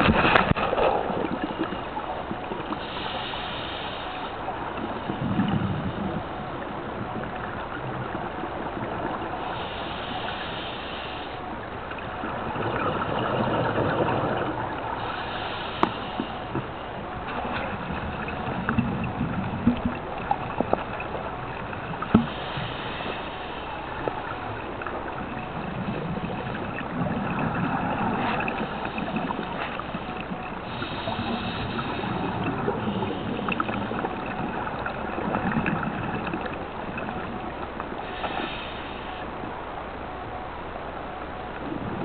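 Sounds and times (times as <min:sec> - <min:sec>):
steady hiss: 0:02.5 - 0:07.6, 0:09.2 - 0:12.5, 0:14.2 - 0:37.0, 0:37.8 - 0:40.9
diver breathing through regulator: 0:02.8 - 0:04.3, 0:09.5 - 0:11.5, 0:15.0 - 0:16.7, 0:22.2 - 0:23.7, 0:30.6 - 0:33.6, 0:38.0 - 0:39.3
bubbles gurgling underwater: 0:04.7 - 0:09.3, 0:12.0 - 0:15.1, 0:16.5 - 0:22.4, 0:24.0 - 0:38.0.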